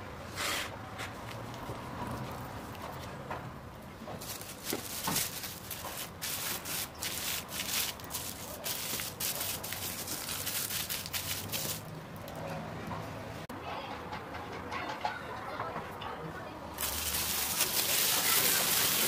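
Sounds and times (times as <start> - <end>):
plastic film crinkling: 4.2 - 11.9, 16.8 - 19.0.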